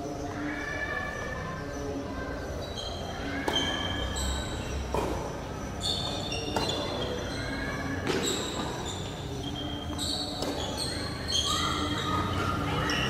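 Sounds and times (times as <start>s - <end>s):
ball bouncing on hard court: 3.4s - 9.2s, 9.9s - 11.0s
tennis ball struck by rackets: 4.9s - 5.4s, 6.0s - 7.1s, 8.0s - 8.8s, 10.3s - 10.9s.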